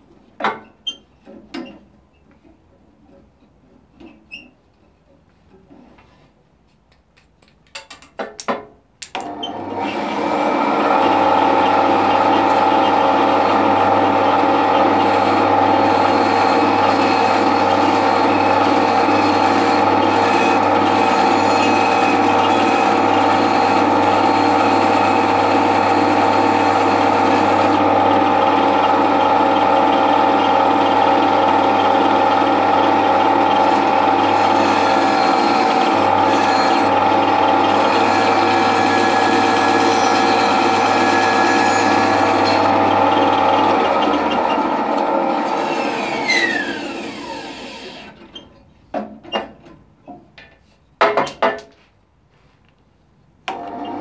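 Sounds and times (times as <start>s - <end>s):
band saw running: 9.2s - 48.2s.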